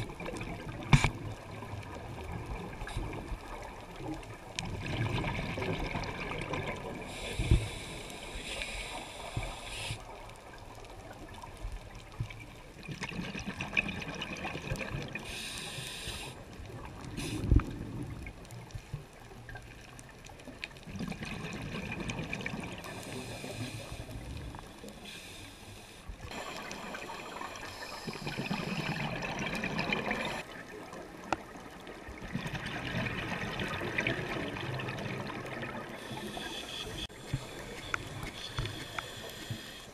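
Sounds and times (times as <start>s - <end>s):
regulator bubbling underwater: 0.0s - 7.2s, 26.2s - 38.7s.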